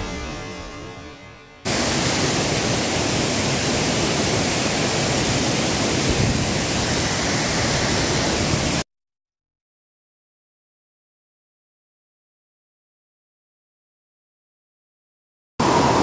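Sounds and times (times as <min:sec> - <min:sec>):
waterfall and stream rushing: 0:01.7 - 0:08.8, 0:15.6 - 0:16.0.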